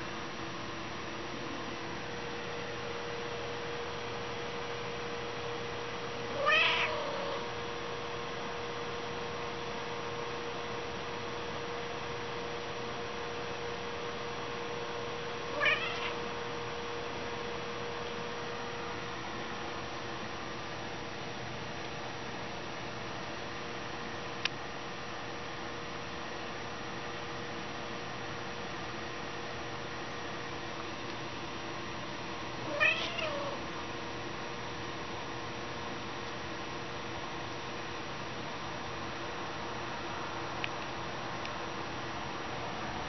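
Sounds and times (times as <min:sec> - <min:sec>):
faint steady hum: 0:00.0 - 0:43.0
cat meowing: 0:06.3 - 0:07.5, 0:15.5 - 0:16.2, 0:32.7 - 0:33.6.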